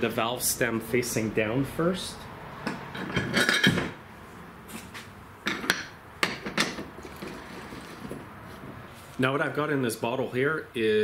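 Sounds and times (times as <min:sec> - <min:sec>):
metal clanks and knocks: 0:02.6 - 0:04.0, 0:05.4 - 0:08.3.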